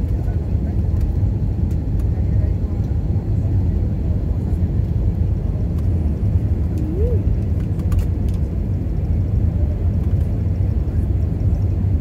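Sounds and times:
airliner cabin rumble: 0.0 - 12.0.

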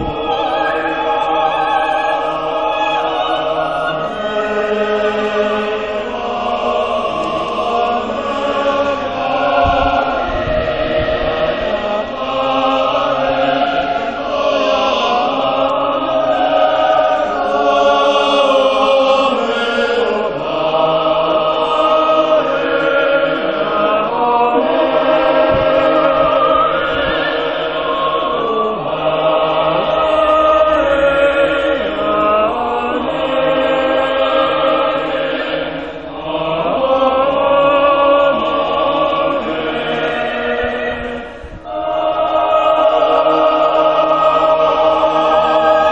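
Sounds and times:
mixed choir singing: 0.0 - 45.9.

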